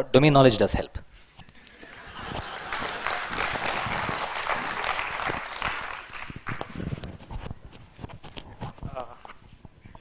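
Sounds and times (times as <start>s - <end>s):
audience applauding: 1.8s - 6.9s.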